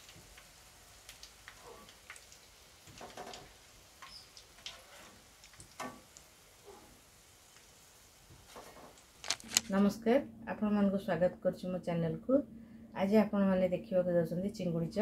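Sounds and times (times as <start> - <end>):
oil frying in a pan: 0.0 - 9.2.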